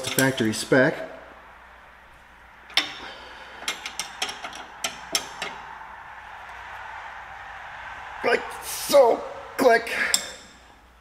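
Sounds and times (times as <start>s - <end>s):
wrench clicking on metal bolts: 0.0s - 0.5s, 3.6s - 5.6s.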